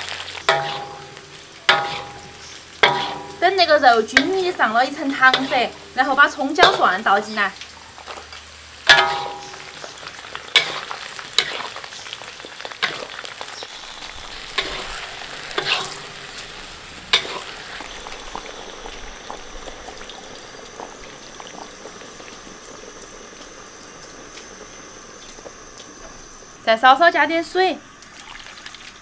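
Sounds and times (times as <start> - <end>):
metal utensil scraping wok: 0.0 - 19.5
meat sizzling in hot oil: 0.0 - 29.0.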